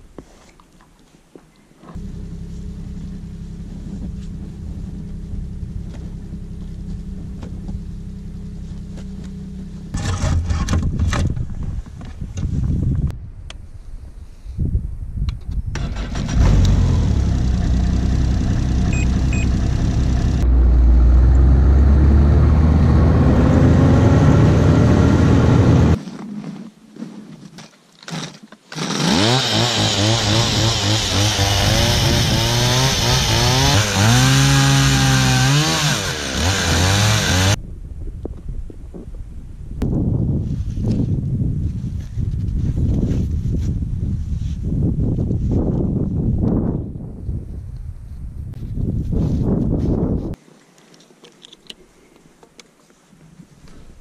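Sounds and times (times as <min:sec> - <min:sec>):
snowmobile engine starting and revving: 0:01.9 - 0:11.1, 0:15.8 - 0:26.0, 0:28.7 - 0:37.6.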